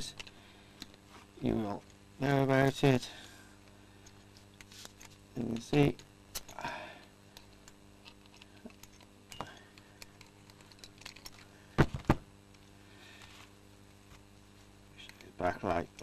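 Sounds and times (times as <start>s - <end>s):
wire strands ticking and scraping: 7.3s - 11.6s.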